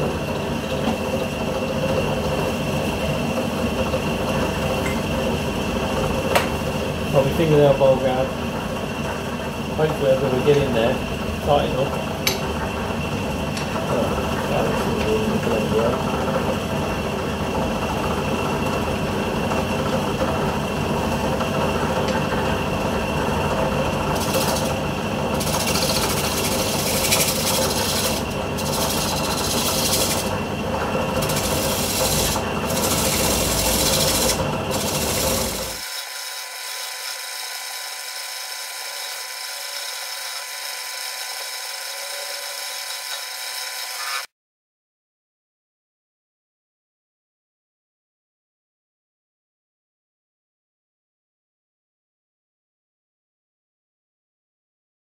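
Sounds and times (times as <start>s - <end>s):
wood lathe hum: 0.0s - 44.3s
gouge scraping spinning wood: 13.6s - 44.3s.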